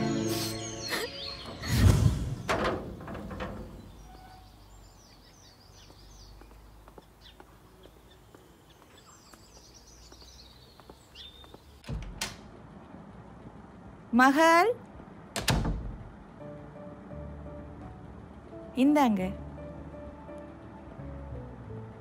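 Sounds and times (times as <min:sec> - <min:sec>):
small birds twittering: 0:00.0 - 0:02.5, 0:03.7 - 0:11.8.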